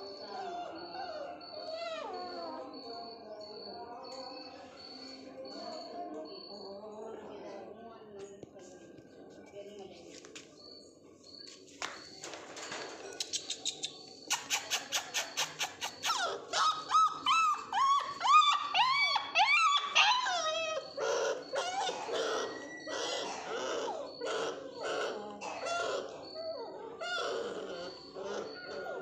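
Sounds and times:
puppies whining and yelping: 0.0 - 3.2, 14.7 - 29.0.

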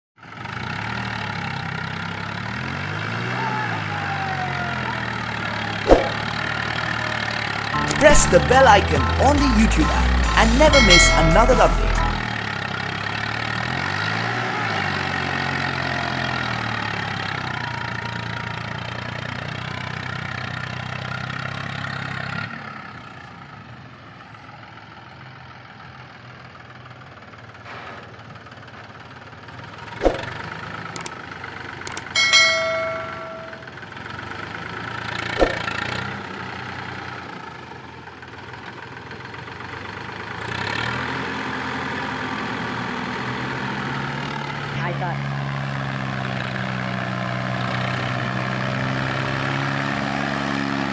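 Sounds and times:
short bell-like chime: 7.8 - 12.3, 31.9 - 33.7.

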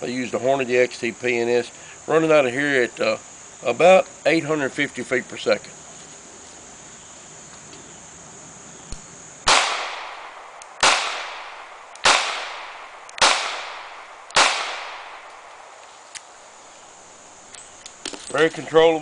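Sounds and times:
revolver shots with echo: 9.5 - 15.3.

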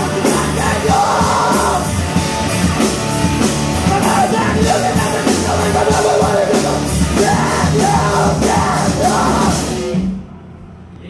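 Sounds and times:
singer yelling: 0.0 - 1.9, 3.8 - 10.0
punk rock band playing: 0.0 - 10.4.

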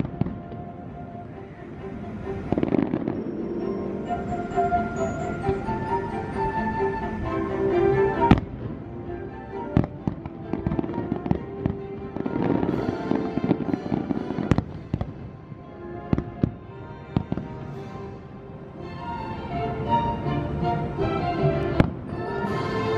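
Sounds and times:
fireworks bangs: 0.0 - 0.8, 2.4 - 3.7, 9.8 - 15.4
fireworks crackling: 0.0 - 6.2, 8.2 - 18.4
music: 0.0 - 22.9.

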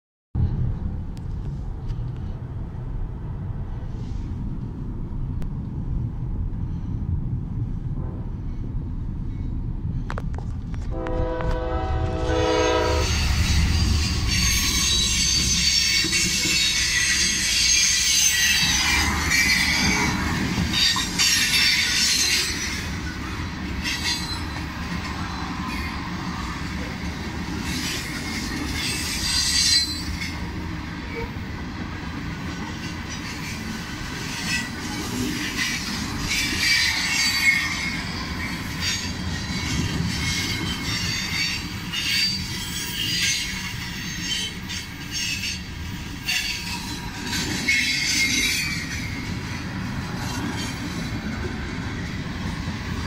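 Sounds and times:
train cars rumbling past: 0.4 - 53.0
train cars clunking: 7.8 - 53.0
locomotive horn chord: 10.9 - 13.3
train wheel squeal: 12.2 - 26.8, 27.6 - 31.5, 32.6 - 52.1.

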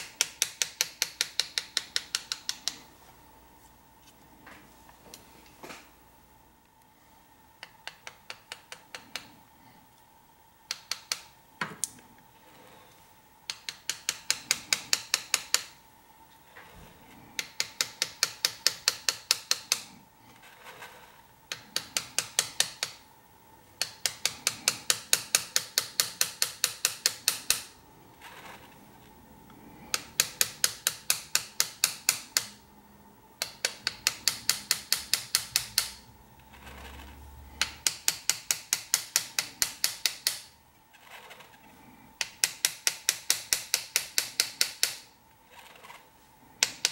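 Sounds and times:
hammer tapping chisel on metal: 0.0 - 2.9, 7.6 - 9.4, 10.7 - 11.9, 13.5 - 15.8, 17.4 - 20.0, 21.5 - 23.0, 23.8 - 27.7, 29.8 - 32.6, 33.4 - 36.1, 37.6 - 40.5, 42.2 - 45.2, 46.6 - 46.9.

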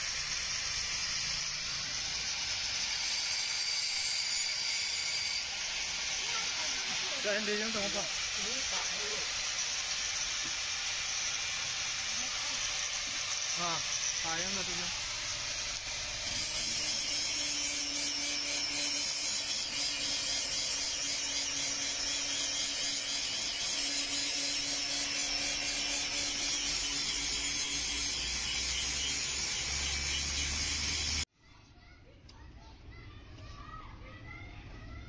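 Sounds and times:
hot blade sizzling in liquid: 0.0 - 31.2.

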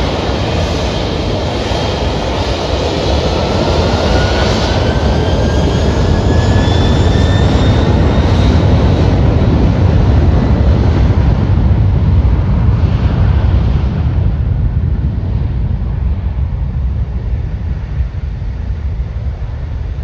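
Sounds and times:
jet engines at high power: 0.0 - 20.0.

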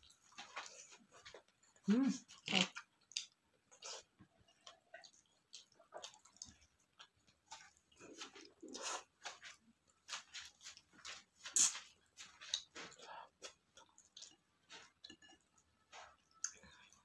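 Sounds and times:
wet chewing: 0.0 - 17.0
lip smacks and mouth clicks: 3.0 - 3.4.

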